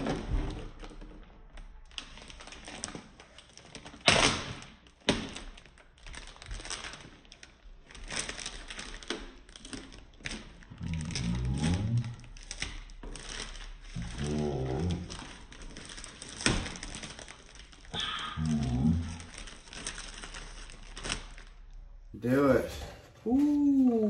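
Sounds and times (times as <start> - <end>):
plastic parts clicking and rustling: 0.0 - 14.2, 14.8 - 17.9.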